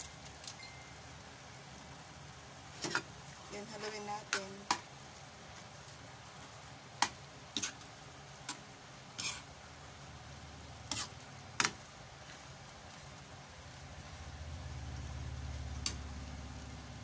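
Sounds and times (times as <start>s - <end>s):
faint sizzle of frying food: 0.0s - 17.0s
spatula knocking and scraping pan: 10.9s - 11.8s.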